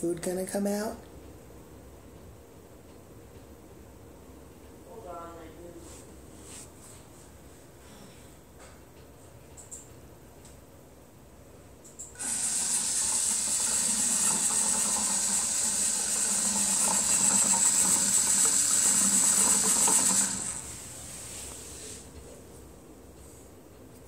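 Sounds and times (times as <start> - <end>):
motorised feeder hiss and rattle: 11.8 - 23.6.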